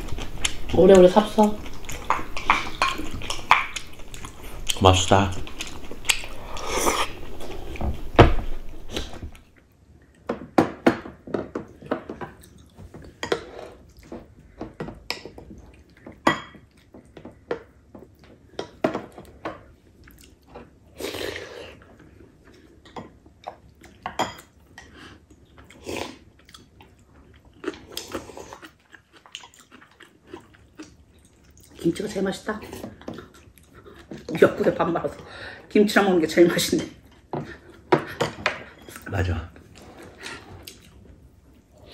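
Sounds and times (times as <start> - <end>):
chewing and mouth noises: 0.0 - 7.8, 12.3 - 14.6, 19.9 - 34.6, 37.0 - 41.9
slurping soup: 5.6 - 7.8.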